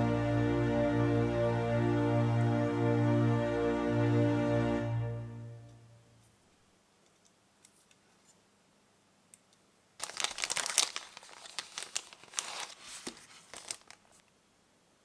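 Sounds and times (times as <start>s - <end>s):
plastic bag crinkling: 10.0s - 14.3s.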